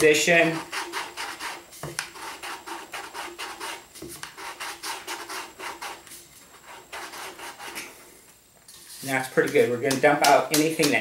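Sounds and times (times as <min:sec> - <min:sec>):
sandpaper rubbing plastic: 0:00.0 - 0:07.9.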